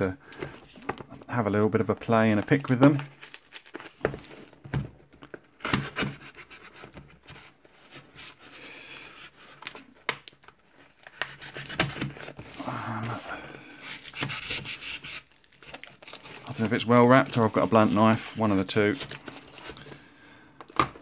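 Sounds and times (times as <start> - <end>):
cardboard and tape rustling: 0.3 - 21.0
knife cutting cardboard box tape: 11.0 - 12.4, 13.8 - 15.3.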